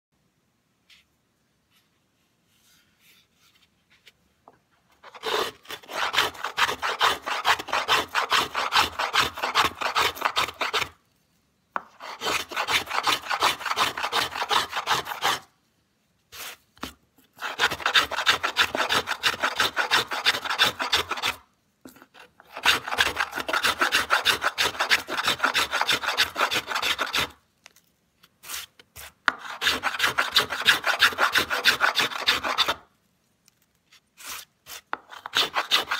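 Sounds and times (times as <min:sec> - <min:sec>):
hand plane shaving wood: 0:05.0 - 0:10.9, 0:11.8 - 0:15.5, 0:17.4 - 0:21.4, 0:22.4 - 0:27.4, 0:28.4 - 0:32.8, 0:34.7 - 0:35.9.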